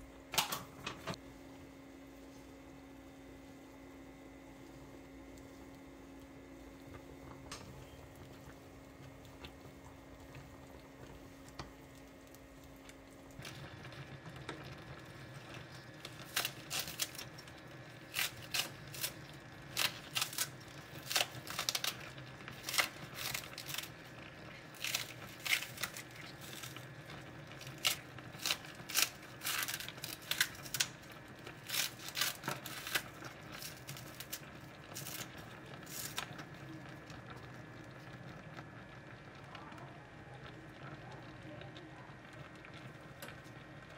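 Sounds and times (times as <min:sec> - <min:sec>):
scissors cutting green onion: 0:16.2 - 0:17.4, 0:18.1 - 0:22.0, 0:22.6 - 0:23.9, 0:24.6 - 0:26.8, 0:27.6 - 0:31.0, 0:31.6 - 0:34.4.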